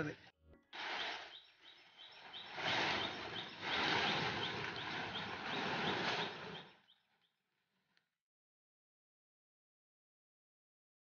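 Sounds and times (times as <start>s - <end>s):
plastic tarpaulin rustling: 0.8s - 6.9s.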